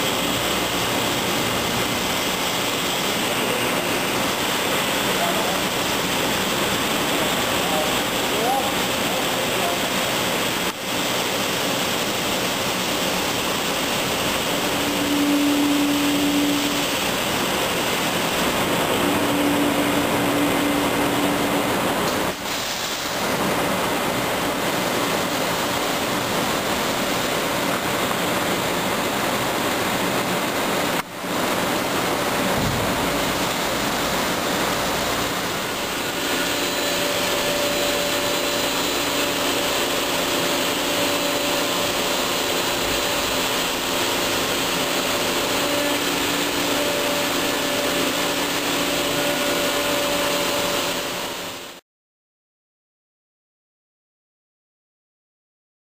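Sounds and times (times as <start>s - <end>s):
gear grinder hissing: 0.0s - 23.2s, 32.9s - 51.5s.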